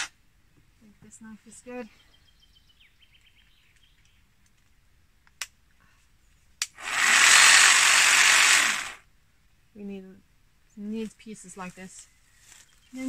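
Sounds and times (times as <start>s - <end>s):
cordless jigsaw running: 6.8s - 9.0s.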